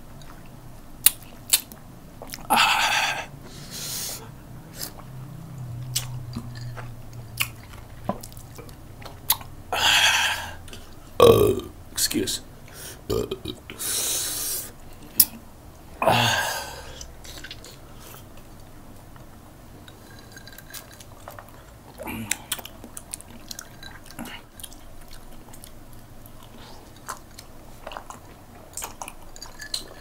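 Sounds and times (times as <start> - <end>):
wet mouth clicks and smacks: 1.0 - 2.5, 5.8 - 9.5
short vocal sound: 11.2 - 11.8, 13.1 - 13.8.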